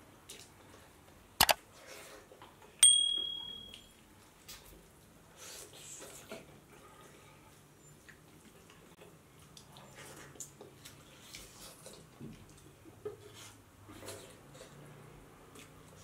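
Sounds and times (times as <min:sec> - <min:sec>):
sharp click: 0:01.4 - 0:01.6
chewing and lip smacks: 0:08.0 - 0:12.7.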